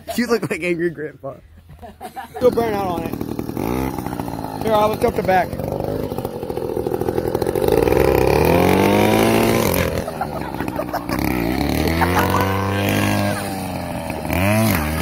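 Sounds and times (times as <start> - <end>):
small engine revving: 2.4 - 15.0.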